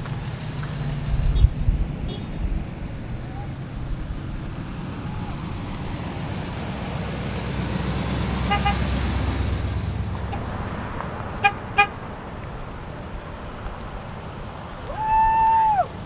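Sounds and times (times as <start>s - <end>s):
vehicles driving past: 0.0s - 16.0s
car horn honking: 2.1s - 2.4s, 8.4s - 8.9s, 11.4s - 12.0s.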